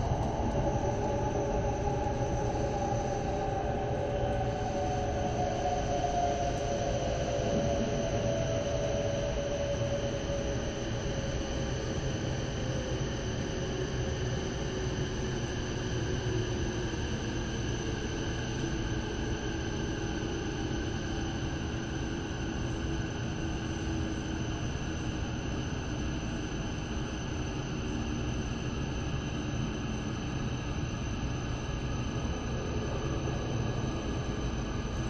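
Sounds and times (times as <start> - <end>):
train running low rumble: 0.0 - 11.4
faint steady whine: 0.0 - 35.0.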